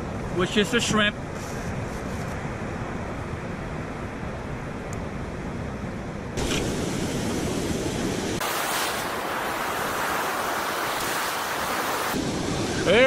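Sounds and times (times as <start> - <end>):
ocean surf washing on beach: 6.4 - 13.0.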